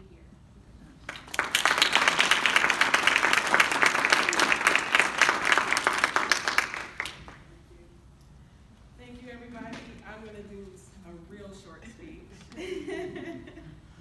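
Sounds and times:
audience applauding: 1.0 - 7.4.

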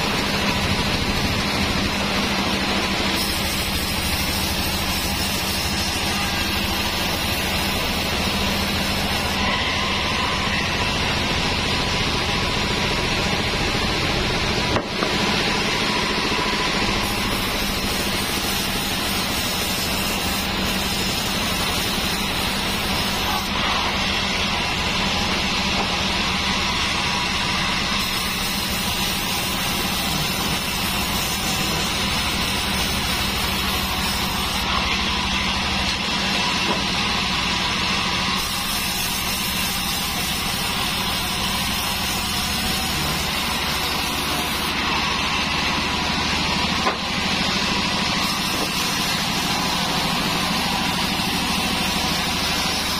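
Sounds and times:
band saw cutting wood: 0.0 - 52.9.

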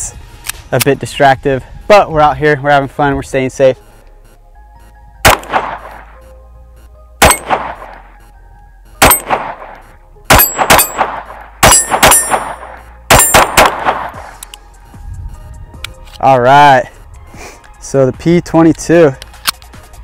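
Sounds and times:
pistol shots: 5.2 - 6.2, 7.2 - 8.1, 9.0 - 14.4
steel plate target clanging: 10.3 - 13.6.

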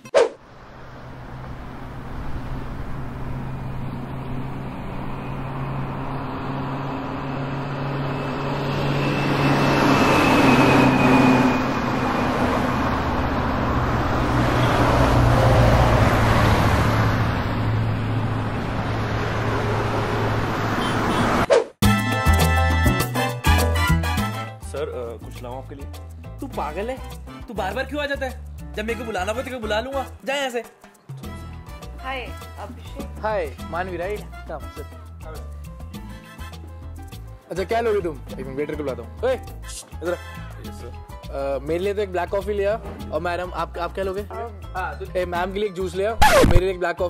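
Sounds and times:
road traffic hum: 0.0 - 21.8.

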